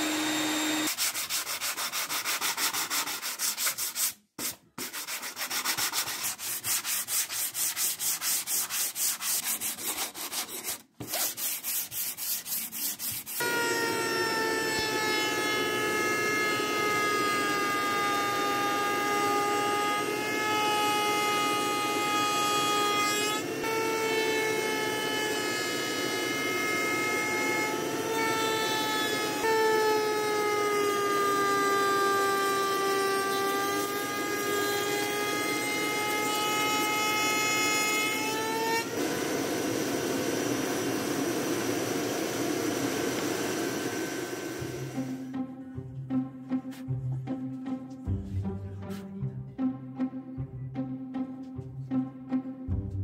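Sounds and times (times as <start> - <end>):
woodworking machine whining: 0.0 - 1.0, 13.1 - 45.4
sander scrubbing plywood: 0.0 - 45.1.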